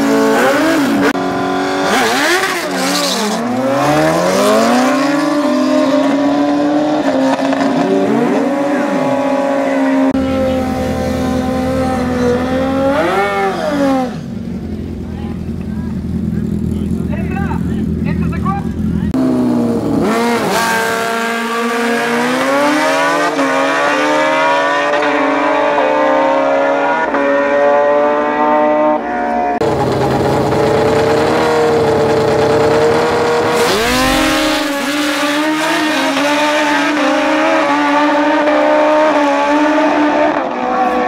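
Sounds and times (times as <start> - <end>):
engine revving high: 0.0 - 14.3, 19.1 - 29.0, 32.7 - 41.0
race car engine accelerating: 0.0 - 14.4, 29.6 - 41.0.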